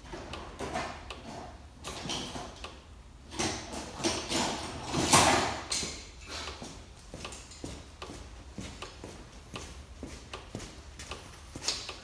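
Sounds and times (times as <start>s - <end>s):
metal tool chest drawers opening and shutting: 0.0s - 2.6s, 3.3s - 6.0s.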